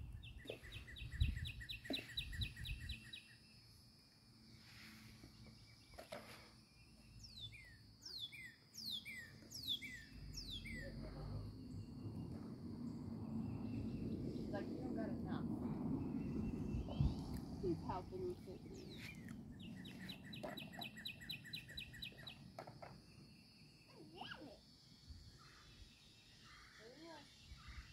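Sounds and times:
bird trilling chirps: 7.2s - 11.1s, 18.6s - 22.5s.

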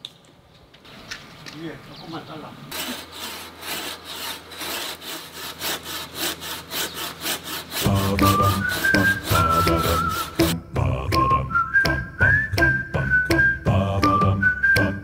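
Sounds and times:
hand saw cutting branch: 2.7s - 10.6s
background music with whistling: 7.8s - 15.0s.

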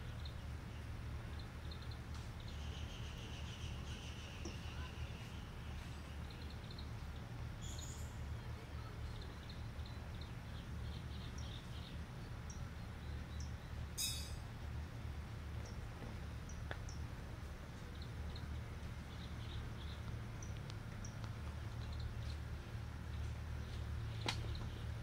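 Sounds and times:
small birds chirping: 0.0s - 25.0s
steady low rumble: 0.0s - 25.0s.

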